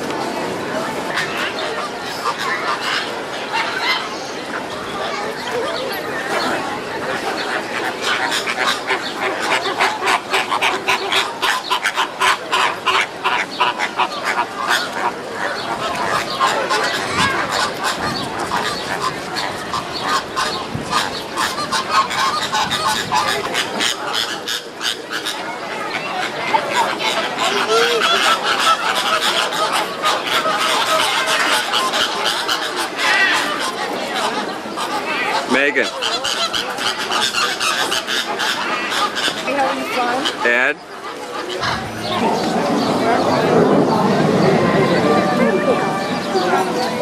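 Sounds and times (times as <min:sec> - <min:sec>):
flock of birds calling: 0:00.5 - 0:47.0
flamingos honking: 0:06.2 - 0:47.0.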